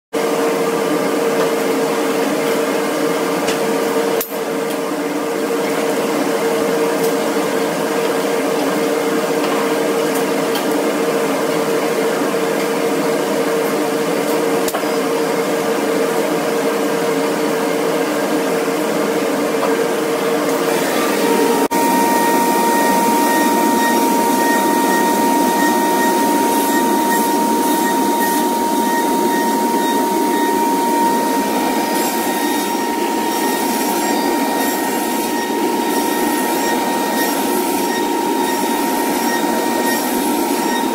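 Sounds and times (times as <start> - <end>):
woodworking machinery whirring: 20.4 - 40.9.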